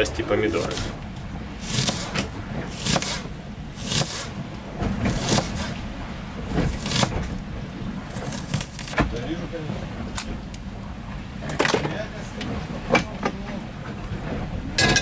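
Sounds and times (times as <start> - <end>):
low steady rumble: 0.0 - 15.0
knife slicing onion on board: 1.6 - 2.2, 2.8 - 4.3, 5.1 - 5.7.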